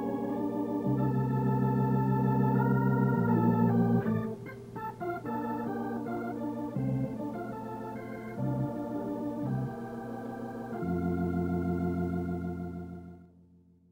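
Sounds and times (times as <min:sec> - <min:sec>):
organ chords: 0:00.0 - 0:13.5.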